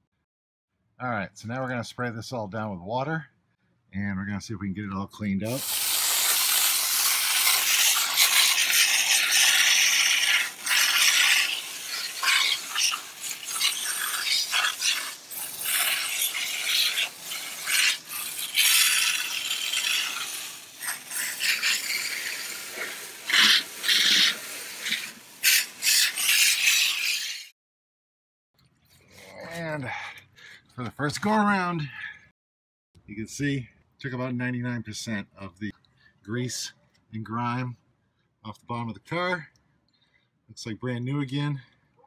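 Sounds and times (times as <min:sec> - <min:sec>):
water spray hissing against metal: 0:05.5 - 0:27.5.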